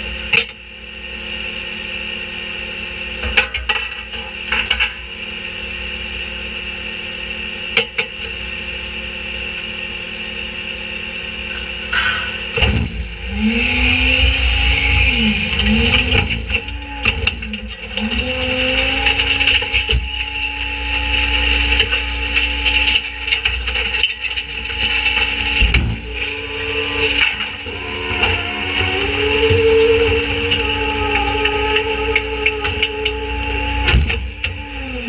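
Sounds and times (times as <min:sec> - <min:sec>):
garbage truck diesel engine: 0:11.1 - 0:23.4, 0:24.0 - 0:35.0.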